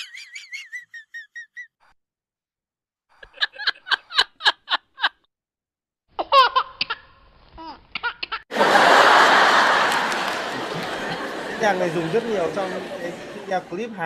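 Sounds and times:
person laughing rhythmically: 0.0 - 1.8, 3.2 - 5.3, 8.1 - 13.4
laugh with sliding pitch: 3.2 - 5.2, 8.5 - 13.7
audience laughing: 8.5 - 14.0.

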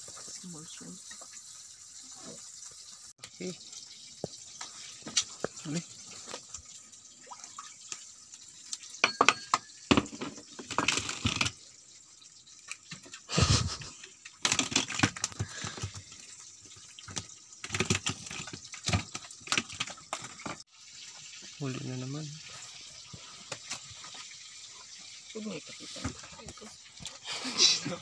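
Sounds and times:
fish splashing and thumping: 8.8 - 11.6, 12.5 - 20.6, 25.8 - 28.0.

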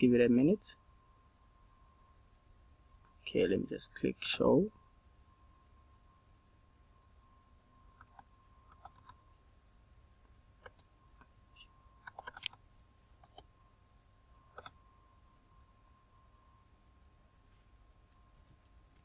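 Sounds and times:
faint electrical tone: 0.0 - 19.0
computer mouse clicks: 8.0 - 9.2, 12.0 - 12.6, 13.2 - 13.5, 14.6 - 14.8.

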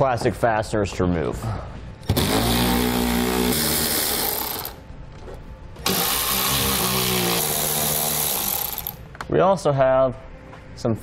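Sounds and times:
cordless power tool spinning: 2.1 - 4.8, 5.8 - 9.0.

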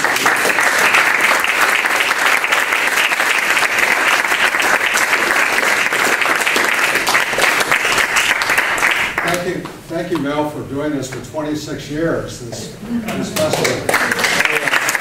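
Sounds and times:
audience applauding: 0.0 - 9.5, 13.2 - 15.0.

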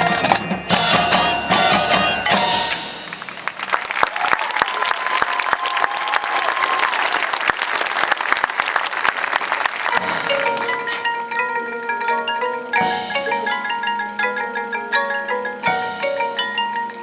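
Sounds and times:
crowd applause: 2.7 - 11.0
marimbas playing ringing notes: 9.9 - 17.0.

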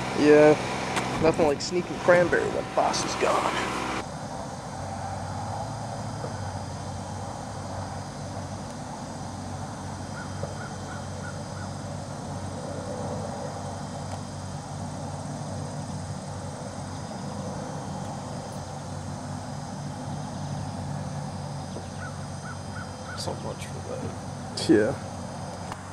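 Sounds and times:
small engine running: 0.0 - 25.9
short bird calls: 10.1 - 11.8, 21.7 - 23.4.

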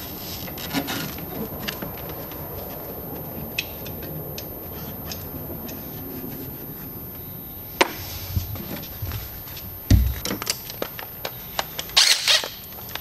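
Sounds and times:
heavy thump: 7.8 - 10.4
hand tools and bolts clicking: 10.0 - 13.0.

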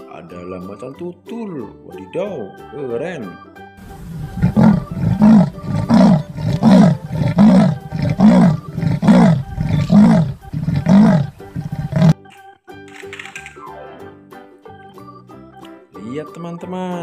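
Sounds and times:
leopard rasping grunts: 3.8 - 12.2.

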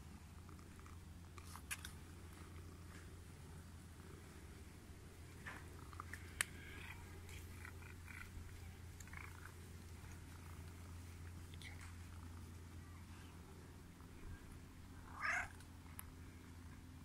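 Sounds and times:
steady low hum: 0.0 - 17.0
cat making faint short sounds: 15.1 - 15.6.

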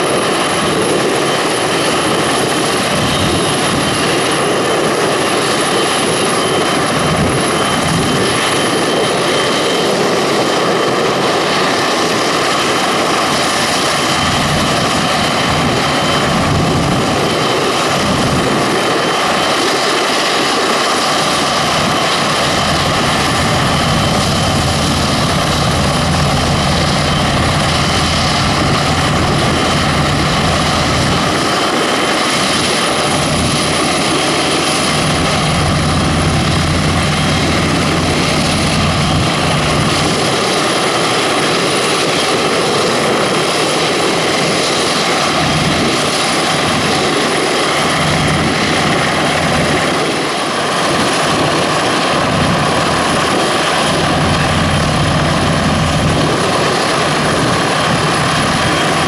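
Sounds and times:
helicopter turbine whine: 0.0 - 59.0
rotor low rumble: 21.0 - 40.2, 54.0 - 59.0.

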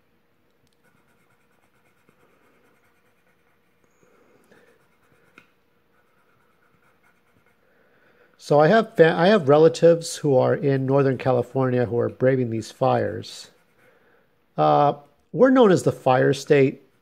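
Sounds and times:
pencil scratching on paper: 0.8 - 7.6, 12.7 - 14.0, 16.1 - 17.0.

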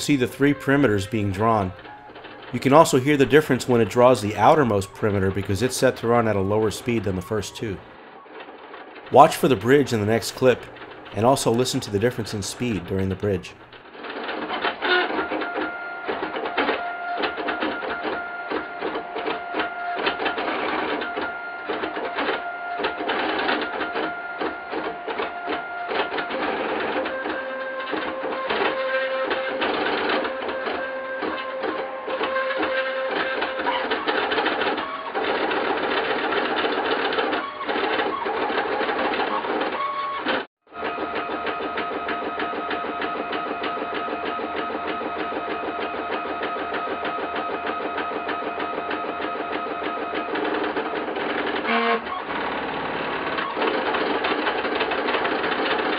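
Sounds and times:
print head fast ticking: 0.0 - 31.7, 41.1 - 55.9
stepper motors whining: 37.2 - 55.9.

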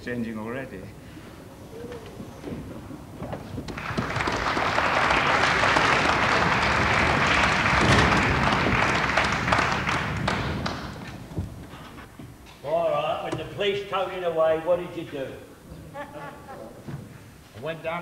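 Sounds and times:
audience applauding: 3.6 - 11.8.

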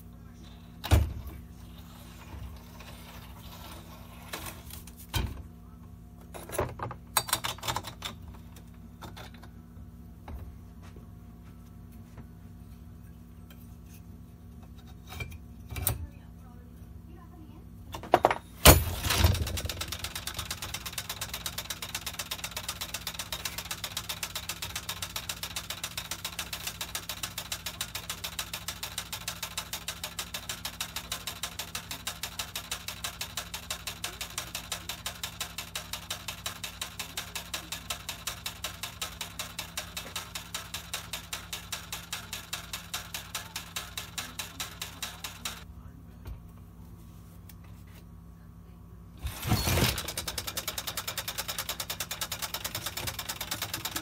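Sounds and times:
spinning arm rapid clicking: 19.0 - 45.7, 49.4 - 54.0.

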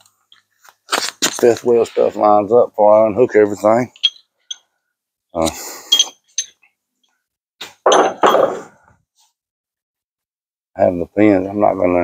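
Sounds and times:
metal parts clanking: 3.9 - 4.6, 5.9 - 6.6.

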